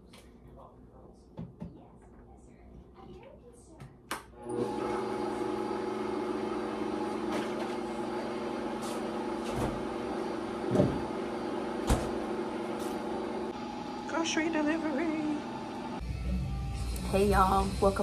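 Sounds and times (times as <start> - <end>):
blender running at high speed: 4.4 - 16.0.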